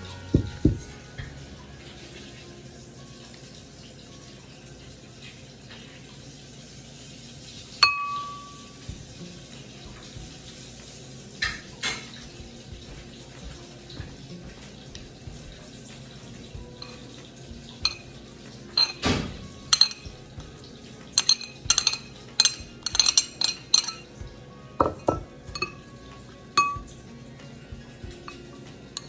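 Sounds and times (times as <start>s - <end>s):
metal spoon clinking on plates: 7.8s - 8.6s, 17.8s - 18.2s, 18.8s - 20.2s, 21.2s - 24.2s, 24.8s - 25.9s, 26.6s - 26.9s.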